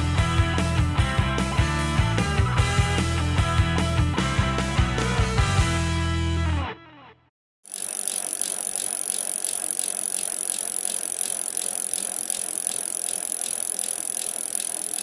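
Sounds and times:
bicycle freewheel ratchet clicking: 7.7 - 15.0.

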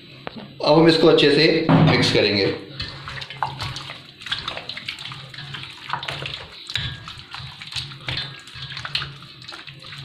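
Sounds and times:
hands squishing meat in marinade: 2.8 - 10.0.

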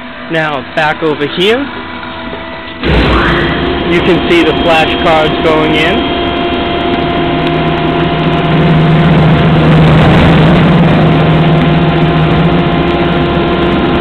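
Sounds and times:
paper shredder drone: 2.3 - 14.0.

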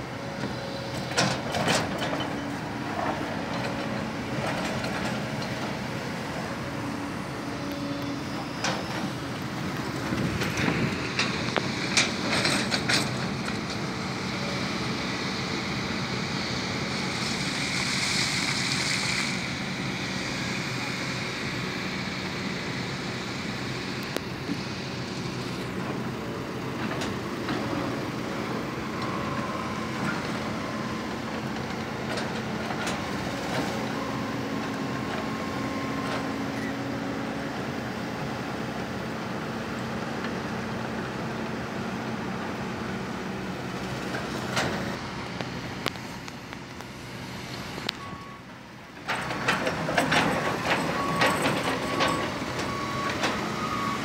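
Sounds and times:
excavator diesel engine running: 0.0 - 54.0
clicks and clanks: 49.0 - 53.4.

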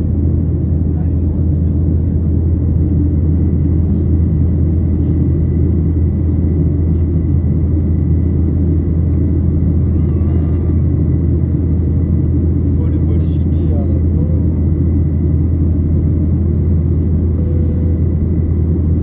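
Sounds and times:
engine and airflow rumble: 0.0 - 19.0
faint high whine: 17.0 - 19.0.

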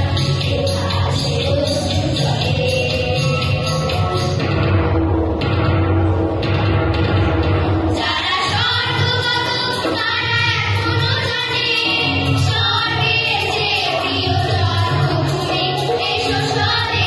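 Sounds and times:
children's choir singing: 0.0 - 4.3, 7.8 - 17.0
instrumental accompaniment: 0.0 - 17.0.

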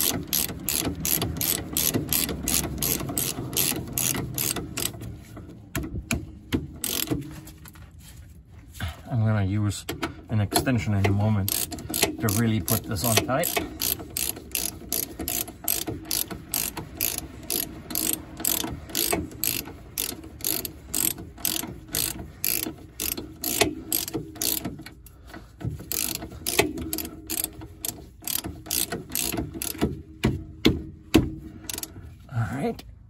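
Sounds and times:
ratchet wrench clicking: 0.0 - 5.1, 6.1 - 7.2, 11.0 - 25.1, 25.7 - 30.4, 31.6 - 32.0.

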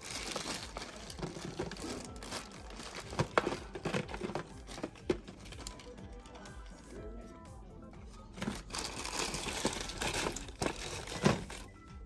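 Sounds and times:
packaging crinkling and rustling: 0.0 - 6.0, 8.4 - 11.7
plastic toys clicking and knocking: 0.0 - 6.4, 8.4 - 11.6.

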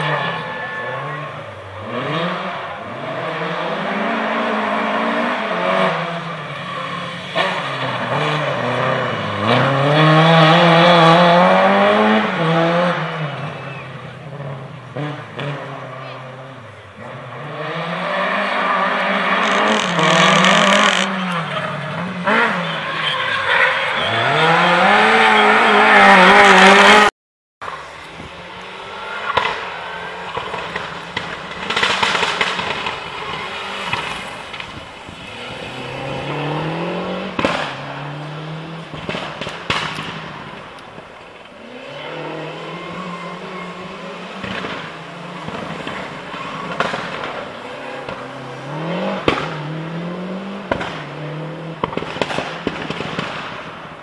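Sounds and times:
rally car engine revving: 0.0 - 54.0
exhaust pops and crackles: 27.6 - 38.0, 38.8 - 41.6, 44.3 - 48.4, 49.1 - 49.7, 50.7 - 54.0.

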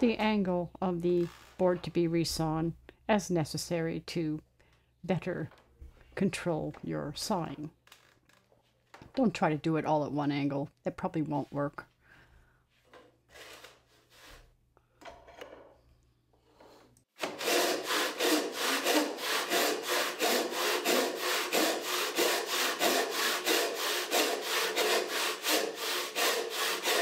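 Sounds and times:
hand saw rasping through wood: 17.2 - 27.0.

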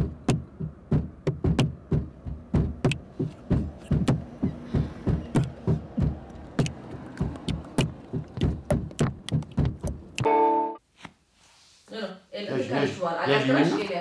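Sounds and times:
hand taps: 0.2 - 10.2.

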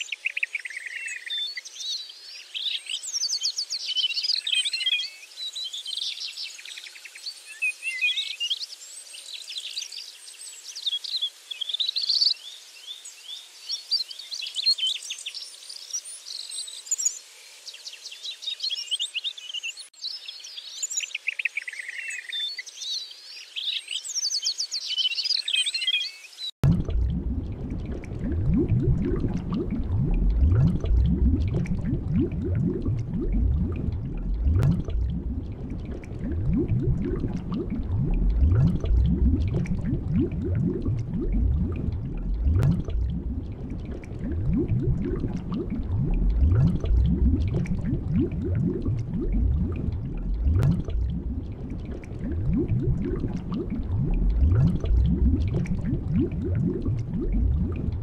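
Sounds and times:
underwater bubbling and gurgling: 26.6 - 58.0.

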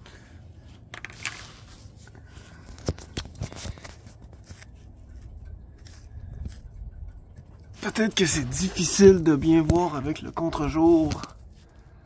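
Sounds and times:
low wind rumble: 0.0 - 12.0
camera handling clicks and scrapes: 0.8 - 6.9.

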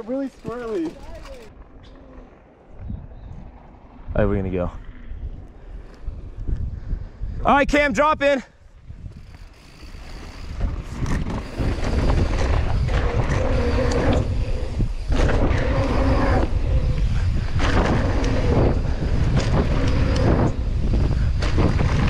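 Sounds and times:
bike clicks and rattles: 0.0 - 2.4, 8.9 - 22.0
wind buffeting microphone: 0.0 - 22.0
tyres rumbling on dirt: 9.3 - 22.0.

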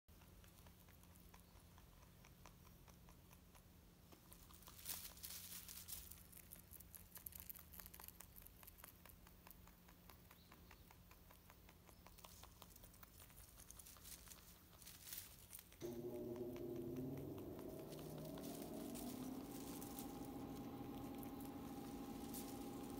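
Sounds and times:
rabbit chewing hay: 0.1 - 22.9
low steady hum: 13.5 - 22.9.

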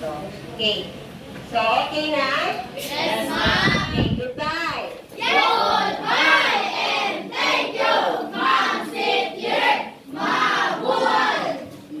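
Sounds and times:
students chanting in unison: 2.8 - 4.0, 5.2 - 11.7.

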